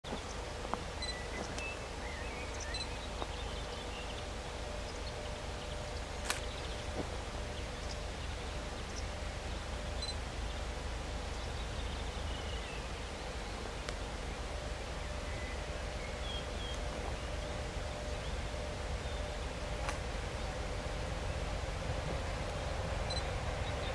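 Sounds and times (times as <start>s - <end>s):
faint hum: 0.0s - 23.9s
bird chirps: 0.1s - 10.7s.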